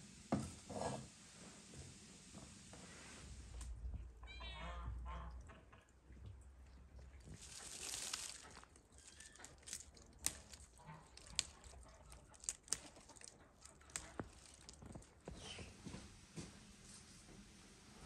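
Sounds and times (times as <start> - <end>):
branches rustling: 7.2 - 15.6
stems snapping: 7.4 - 15.2.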